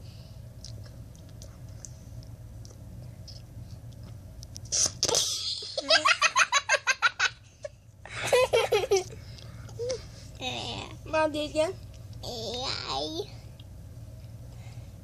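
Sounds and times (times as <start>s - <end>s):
giggling laughter: 8.1s - 9.1s.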